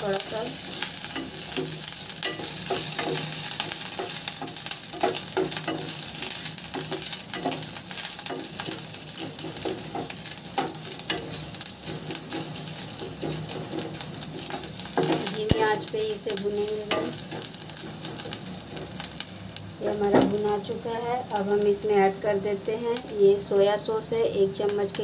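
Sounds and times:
ginger and garlic sizzling in oil: 0:00.0 - 0:25.0
wooden spatula scraping pan: 0:00.2 - 0:15.4.

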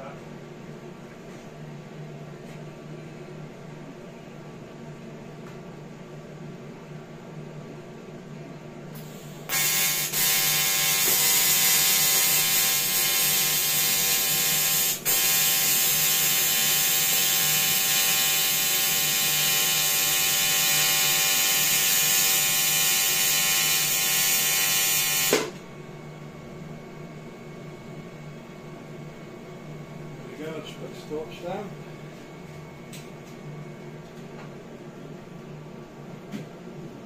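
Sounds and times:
welding arc buzzing: 0:09.0 - 0:25.6.

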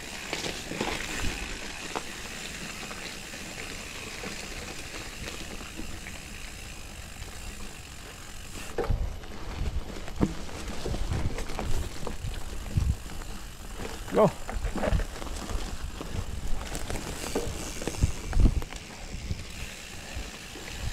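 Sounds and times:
bike tyres on leaf litter: 0:00.0 - 0:20.9
bike thumps and knocks: 0:10.1 - 0:12.2.

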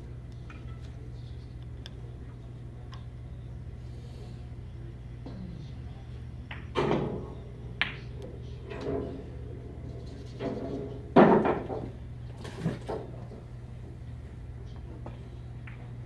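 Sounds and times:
pool balls clacking: 0:06.5 - 0:13.9.

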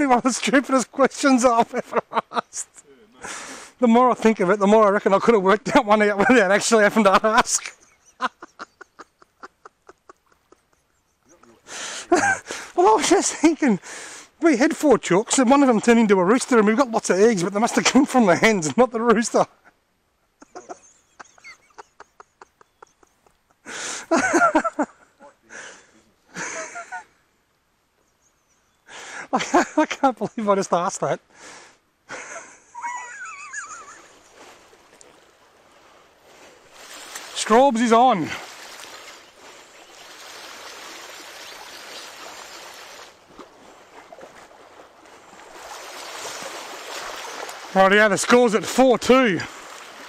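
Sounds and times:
men laughing: 0:00.9 - 0:03.6, 0:05.6 - 0:13.8, 0:20.4 - 0:27.2, 0:29.1 - 0:30.5, 0:32.1 - 0:34.6
creek water rushing over gravel: 0:12.4 - 0:19.3, 0:34.0 - 0:50.0.

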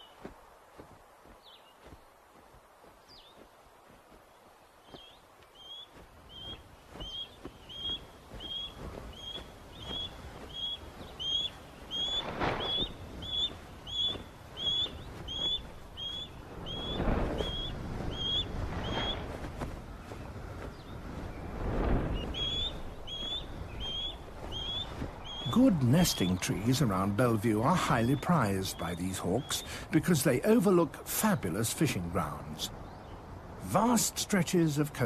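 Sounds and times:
bird whistled chirps: 0:05.0 - 0:19.2, 0:22.2 - 0:26.4
rushes of noise: 0:06.4 - 0:27.8.

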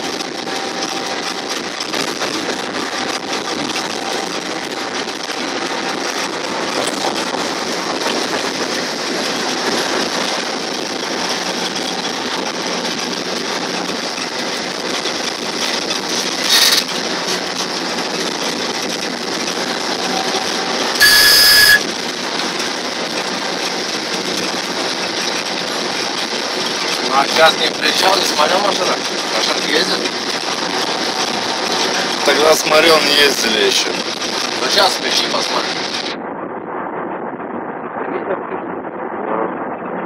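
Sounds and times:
train wheels rumbling on rails: 0:00.0 - 0:40.0
brief high-pitched tone: 0:20.2 - 0:21.9.

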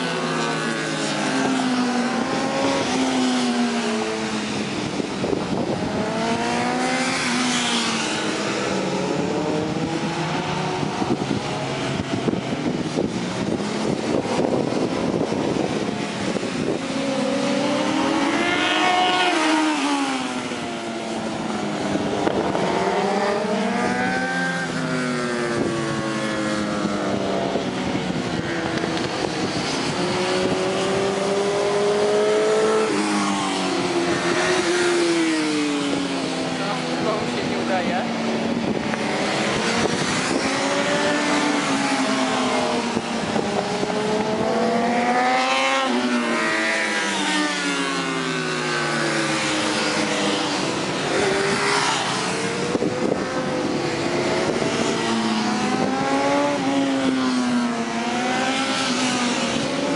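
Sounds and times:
motorcycle engines racing: 0:00.0 - 0:59.9
motorcycle passing close: 0:00.0 - 0:59.9.

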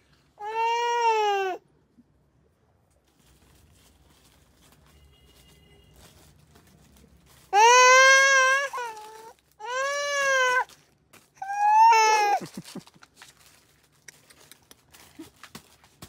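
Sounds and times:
baby crying: 0:00.4 - 0:01.6, 0:07.5 - 0:10.7, 0:11.4 - 0:12.6.

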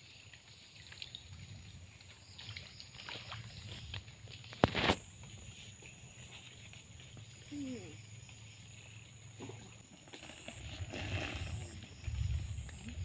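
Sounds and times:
water sloshing and splashing: 0:00.0 - 0:07.5
high insect drone: 0:04.6 - 0:13.0.

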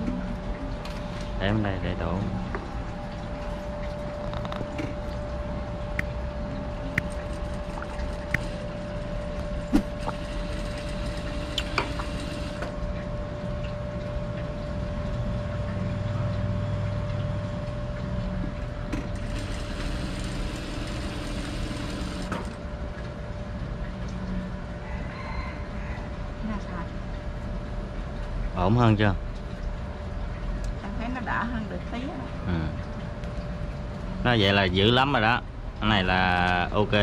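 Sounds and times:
steady hum: 0:00.0 - 0:24.9
sewing machine stitching: 0:19.2 - 0:22.5.

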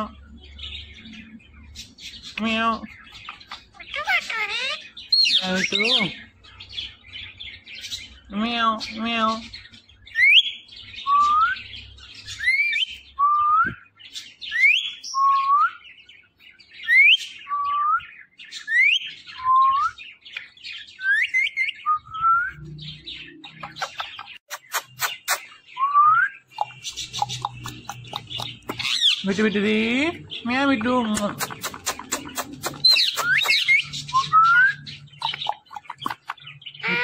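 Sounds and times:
parakeet clicking and chatter: 0:01.8 - 0:06.9, 0:23.3 - 0:25.6, 0:26.4 - 0:37.0
parakeet whistling: 0:03.7 - 0:06.1, 0:31.9 - 0:36.2.

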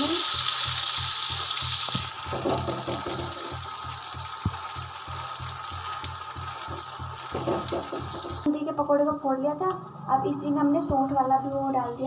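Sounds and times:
paste sizzling in oil: 0:00.0 - 0:08.5.

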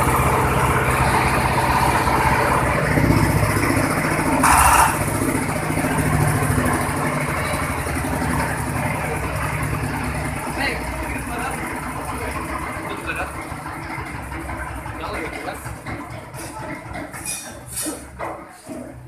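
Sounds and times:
diesel engine running: 0:00.0 - 0:19.0.

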